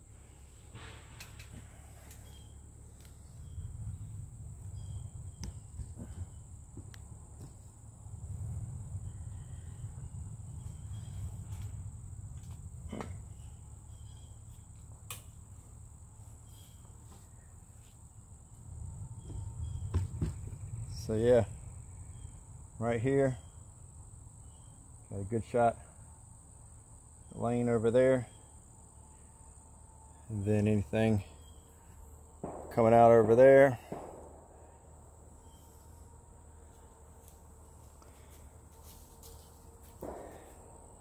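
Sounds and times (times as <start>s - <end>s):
insect chorus droning: 0.0s - 41.0s
low rumble on microphone: 3.1s - 14.3s, 18.3s - 22.8s.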